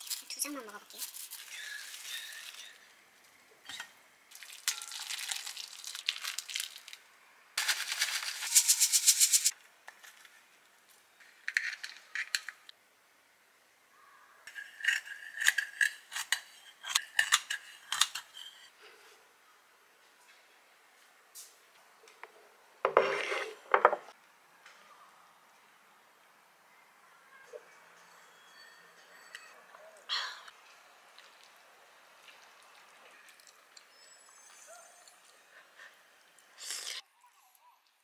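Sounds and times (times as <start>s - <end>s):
plastic bag crinkling: 4.3s - 7.0s, 7.6s - 8.9s.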